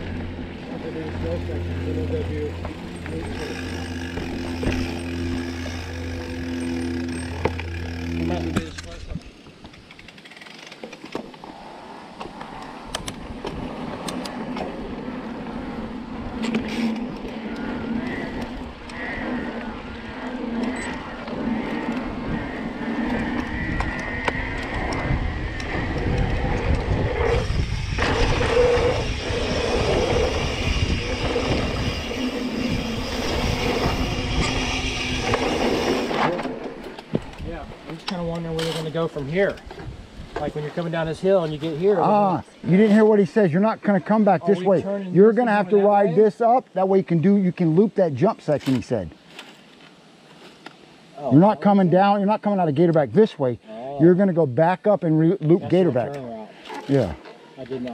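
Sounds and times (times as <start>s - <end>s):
bike rattling over rough ground: 0.0s - 42.1s
wind buffeting microphone: 12.5s - 41.9s.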